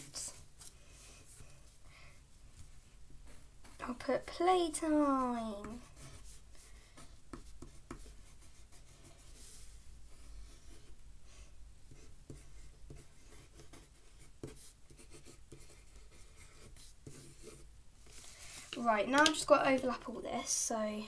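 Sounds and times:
pencil scratching on paper: 3.2 - 11.0, 11.9 - 19.0.

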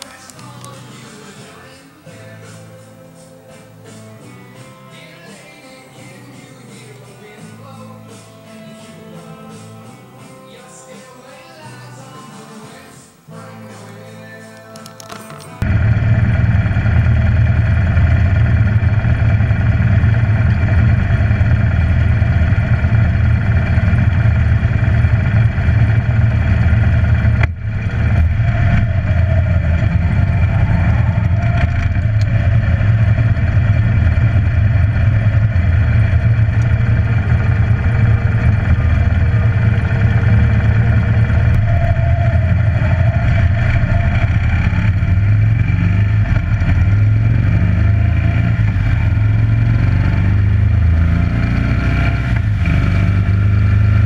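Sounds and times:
motorcycle engine running: 15.2 - 54.0.

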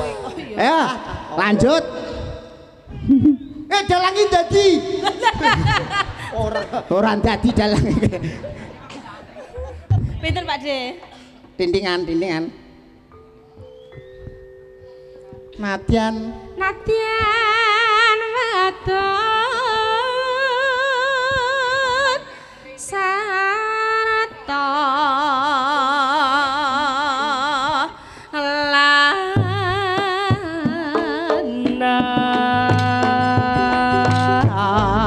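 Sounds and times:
person singing slow song: 15.2 - 35.0.

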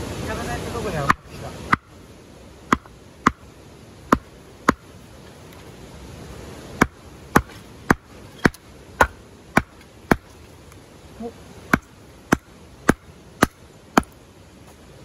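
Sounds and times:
hatchet chopping wood: 1.1 - 1.9, 2.7 - 3.4, 4.1 - 4.9, 6.8 - 10.4, 11.7 - 14.2.

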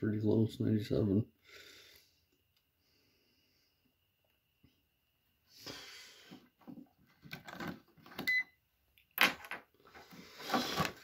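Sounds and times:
handling rustling and scrapes: 9.8 - 11.0.

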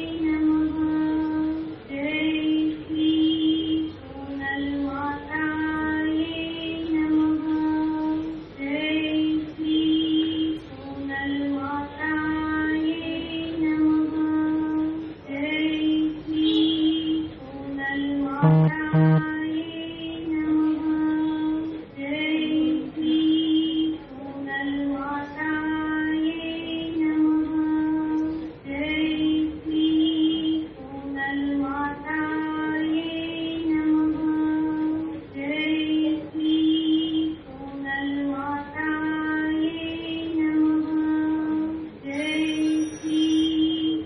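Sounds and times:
woman singing devotional song: 0.0 - 44.0.

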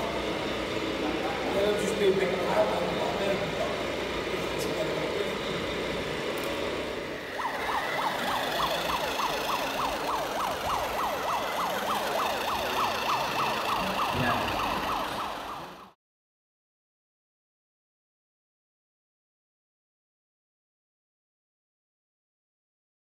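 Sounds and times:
murmur of large hall: 0.0 - 15.9
electronic police siren whoops: 7.2 - 16.0.

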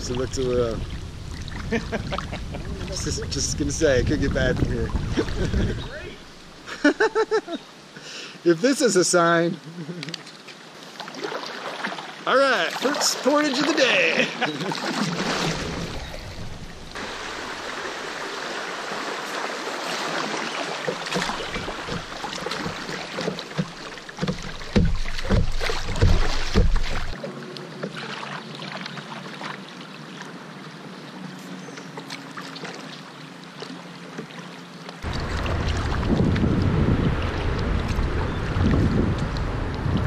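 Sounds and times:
water rushing around kayak hull: 0.0 - 40.0
dull knocks: 20.9 - 27.2.

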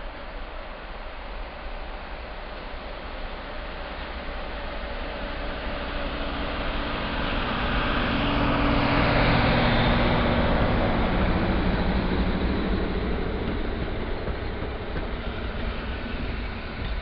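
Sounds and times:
diesel locomotive engine: 0.0 - 17.0
train coaches rolling past: 0.0 - 17.0.

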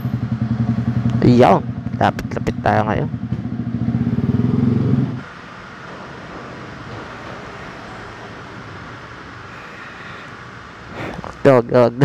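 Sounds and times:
motorcycle engine idling: 0.0 - 5.0
background hum: 0.0 - 12.0.

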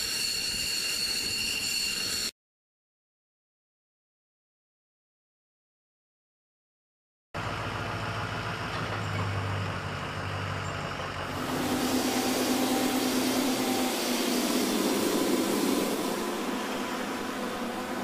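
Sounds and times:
truck engine humming: 7.4 - 18.0
rushing hiss with held tones: 11.3 - 18.0.

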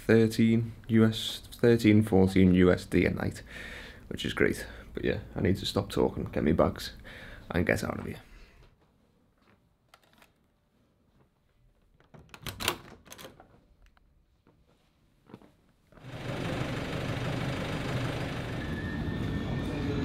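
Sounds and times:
clicks and knocks of handling: 11.2 - 15.6.

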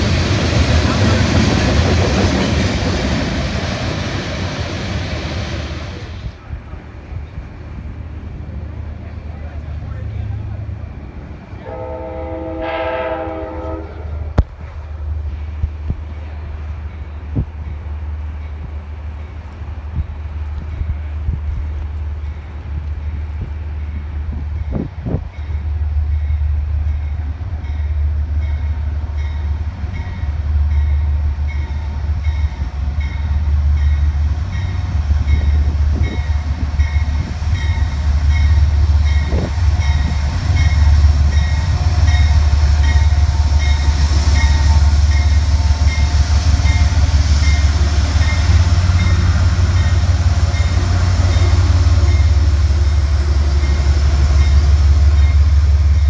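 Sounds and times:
diesel train rolling past: 0.0 - 56.0.

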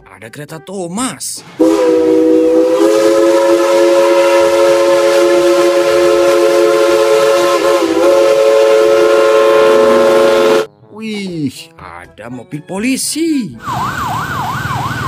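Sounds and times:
steam locomotive chime whistle: 1.6 - 10.7.

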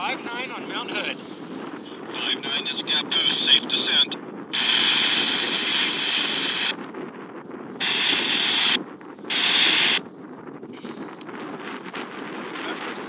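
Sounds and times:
hissy garbled radio audio: 0.0 - 6.8, 7.8 - 10.0, 12.4 - 13.0
wind rumble on microphone: 0.0 - 13.0.

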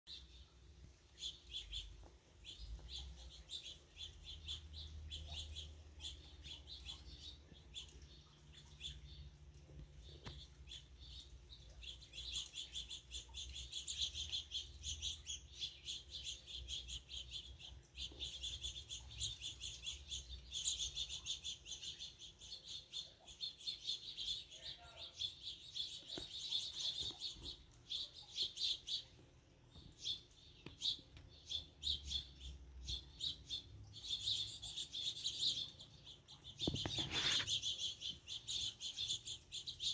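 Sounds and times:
finches chirping and twittering: 0.1 - 39.9.

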